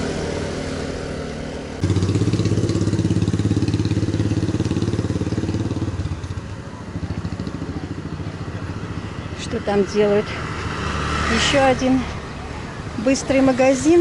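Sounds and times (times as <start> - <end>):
motor scooter passing: 0.0 - 14.0.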